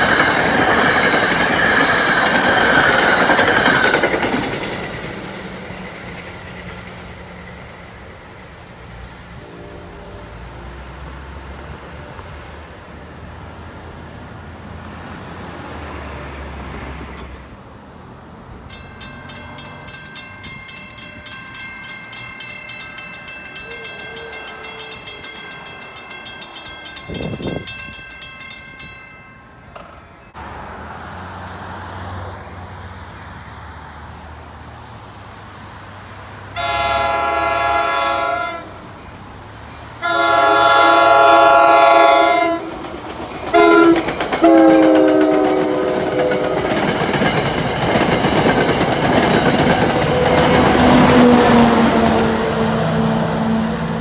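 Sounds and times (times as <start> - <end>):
crossing warning bell ringing: 0.0 - 8.4, 18.6 - 30.4, 36.6 - 39.2, 40.0 - 54.0
traffic rumble: 0.0 - 54.0
train horn blast: 9.2 - 11.1, 36.6 - 38.8, 40.0 - 42.8, 43.5 - 46.9.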